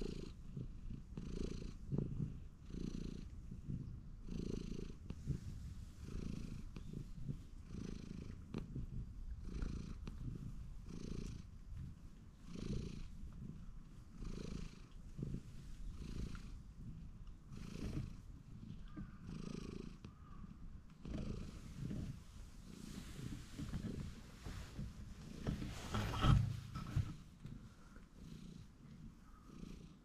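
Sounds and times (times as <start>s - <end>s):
cat purring: 0.0s - 30.0s.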